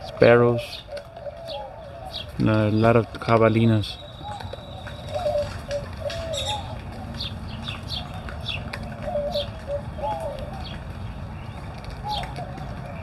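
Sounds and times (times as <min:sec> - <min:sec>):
doves cooing: 0:00.0 - 0:13.0
small birds chirping: 0:00.0 - 0:13.0.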